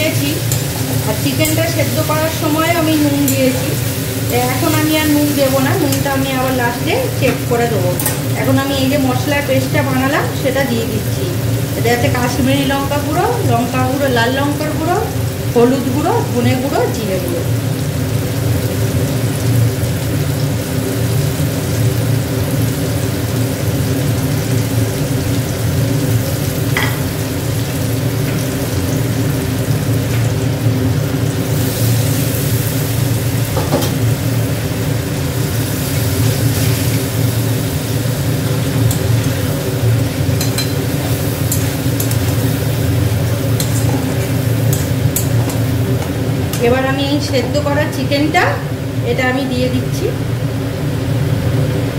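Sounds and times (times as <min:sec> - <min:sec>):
paste sizzling in a wok: 0:00.0 - 0:48.0
spatula stirring in a wok: 0:00.4 - 0:06.6, 0:35.6 - 0:46.7.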